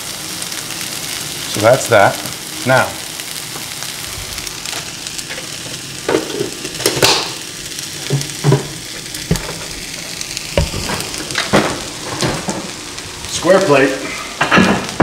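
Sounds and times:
food sizzling in a frying pan: 0.0s - 15.0s
knocks and clatters: 8.0s - 9.7s, 14.4s - 15.0s.

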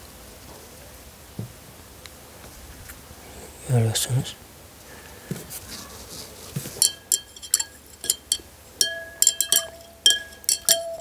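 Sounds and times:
glass rod clinking in beaker: 6.8s - 11.0s.

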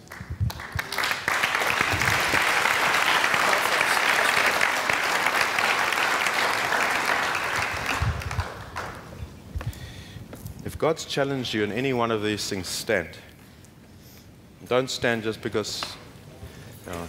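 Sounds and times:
crowd applauding: 0.0s - 9.2s.

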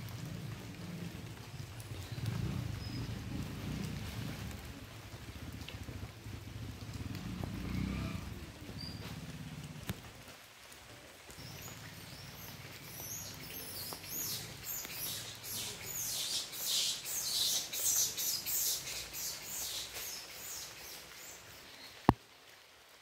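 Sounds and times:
bird chirping: 11.4s - 22.0s.

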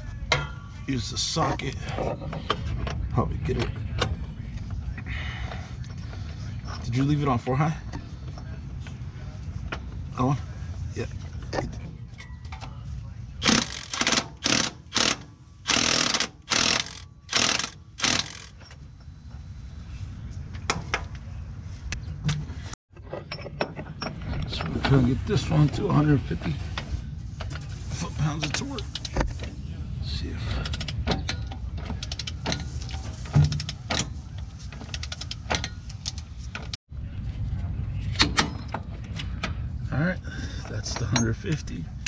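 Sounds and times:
power ratchet whirring: 13.4s - 18.6s.

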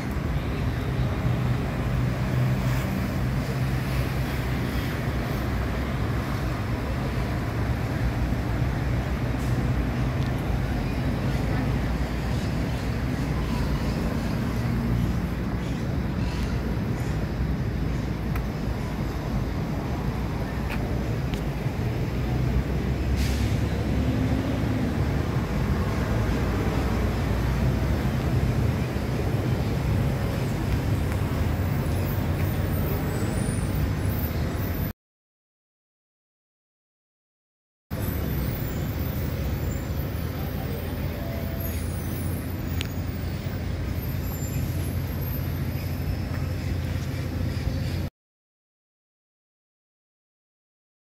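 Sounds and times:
city street traffic rumble: 0.0s - 34.9s, 37.9s - 48.1s.

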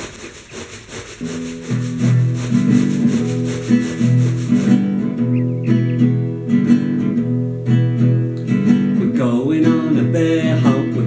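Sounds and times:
regular swishing noise: 0.0s - 5.0s
acoustic guitar strumming chords: 1.3s - 11.0s.

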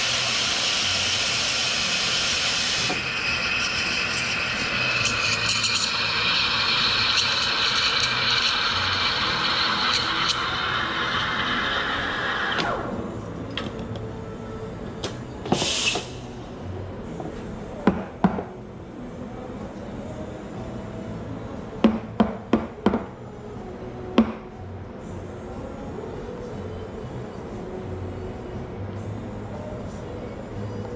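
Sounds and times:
espresso machine noise: 0.0s - 13.0s
faint background music: 7.7s - 30.9s
short hiss: 15.5s - 16.3s.

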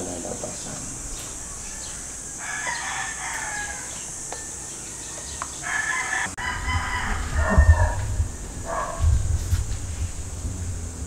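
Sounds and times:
chickens clucking: 0.0s - 9.9s
rooster crowing: 1.0s - 10.4s
low rumble: 6.4s - 11.0s.

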